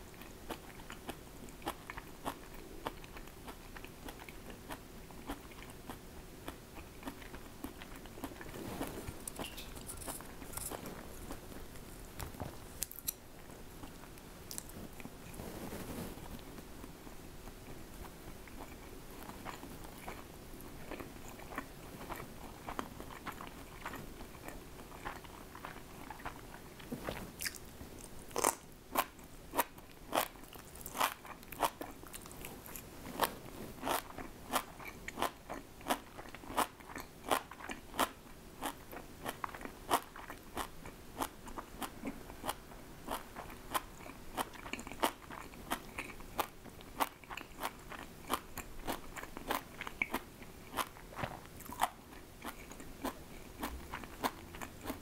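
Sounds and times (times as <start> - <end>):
person chewing crunchy food: 0.1 - 15.4, 17.7 - 55.0.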